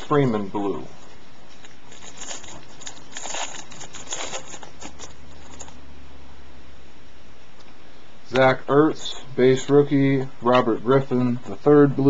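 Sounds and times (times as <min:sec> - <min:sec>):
card pack wrapper crinkling: 0:01.0 - 0:05.8.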